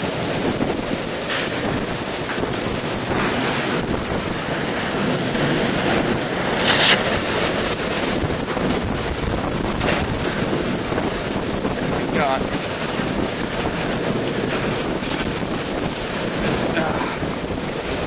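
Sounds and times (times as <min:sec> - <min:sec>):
strong wind rushing: 0:00.0 - 0:18.0
loud hiss: 0:06.5 - 0:07.2.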